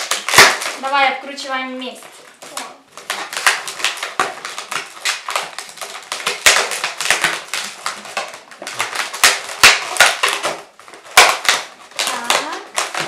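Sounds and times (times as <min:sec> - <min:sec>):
balloons rubbing and squeaking: 0:00.0 - 0:13.0.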